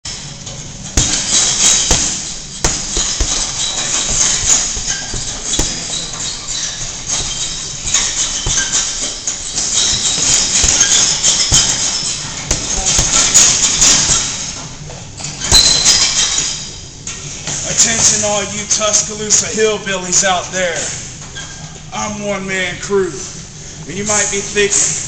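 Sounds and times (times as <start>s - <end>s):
punches smacking focus mitts: 1.0s - 6.0s, 10.2s - 11.8s, 12.4s - 14.4s.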